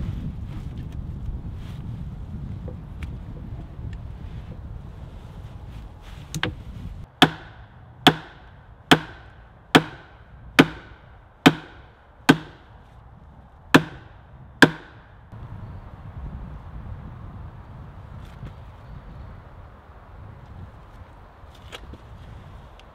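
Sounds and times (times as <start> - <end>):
hammer striking wood: 6.4 - 12.7, 13.7 - 15.1.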